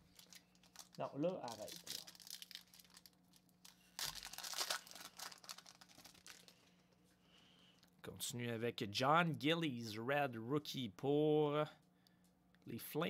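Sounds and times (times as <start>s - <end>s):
plastic wrapper tearing and crinkling: 0.0s - 6.9s.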